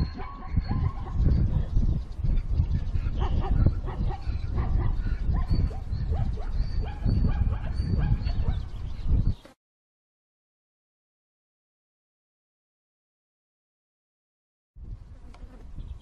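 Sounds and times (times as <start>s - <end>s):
animal whimpering and yelping: 0.0s - 1.8s.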